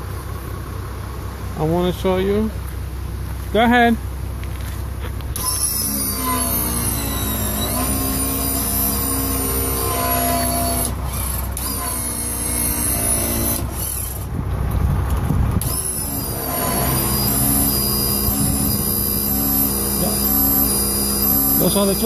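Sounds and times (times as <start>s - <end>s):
mechanical hum of jacks: 4.4s - 22.0s.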